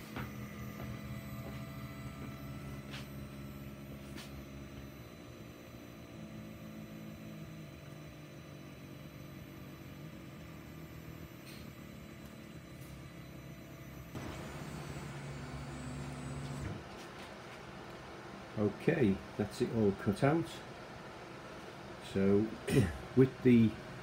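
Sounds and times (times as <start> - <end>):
stepper motors humming: 0.0 - 18.0
fume extractor fan drone: 0.0 - 24.0.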